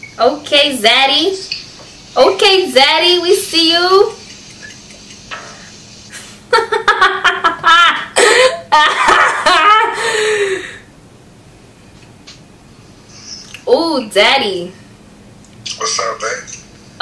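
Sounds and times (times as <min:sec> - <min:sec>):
woman laughing: 0:06.1 - 0:10.8.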